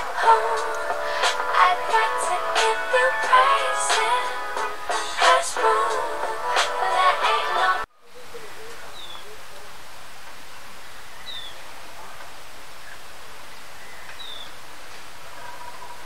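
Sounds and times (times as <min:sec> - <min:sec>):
background music: 0:00.0 - 0:07.9
ambient hiss: 0:00.0 - 0:16.0.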